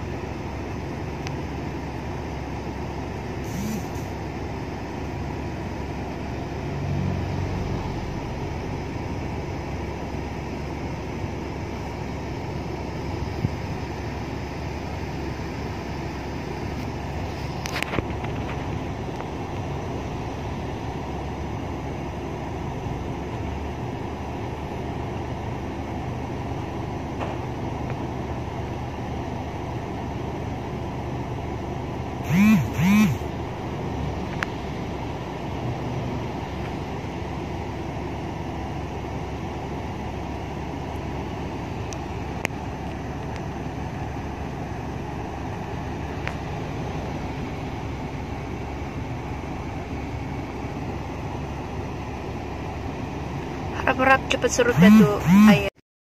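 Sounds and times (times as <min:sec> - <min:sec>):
car engine and road hum: 0:00.0 - 0:55.8
short clicks: 0:03.5 - 0:04.1.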